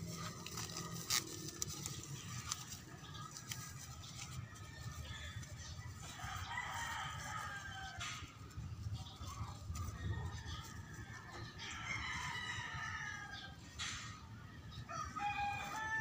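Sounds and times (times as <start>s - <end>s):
plastic film crinkling: 0.0s - 11.0s
rooster crowing: 6.1s - 8.0s, 14.9s - 16.0s.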